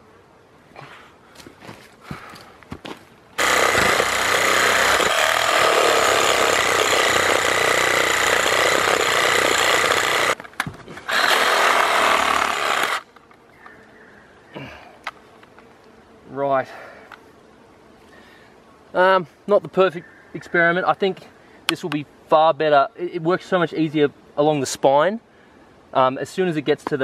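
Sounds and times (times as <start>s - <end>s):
reciprocating saw cutting bone: 3.4s - 10.4s, 11.1s - 13.0s.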